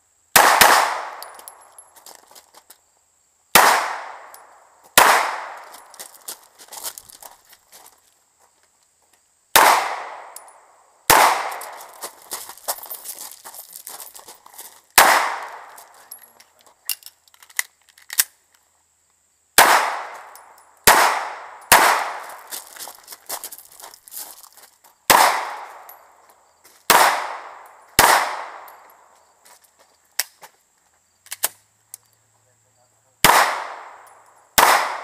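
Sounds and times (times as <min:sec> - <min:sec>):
pistol shots echoing: 0:00.4 - 0:01.6, 0:03.5 - 0:05.9, 0:09.6 - 0:11.9, 0:15.0 - 0:15.8, 0:19.6 - 0:22.5, 0:25.1 - 0:26.0, 0:26.9 - 0:28.8, 0:33.2 - 0:35.0.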